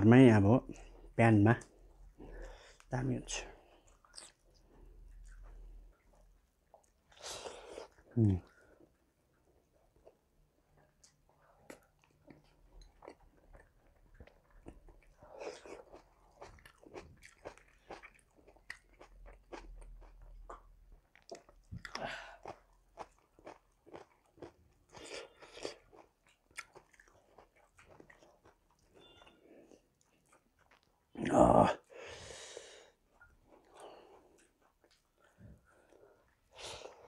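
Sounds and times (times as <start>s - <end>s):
person chewing food: 3.6s - 37.0s.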